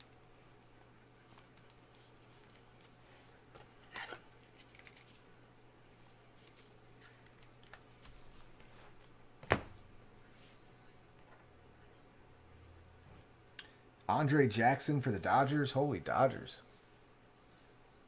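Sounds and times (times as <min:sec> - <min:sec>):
plastic sleeve rustling: 0:03.8 - 0:05.2.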